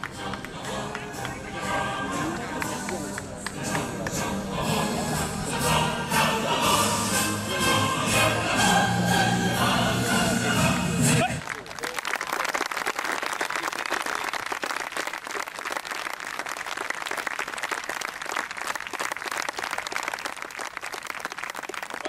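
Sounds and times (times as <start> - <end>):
crowd applauding: 0.0 - 1.5, 11.2 - 22.0.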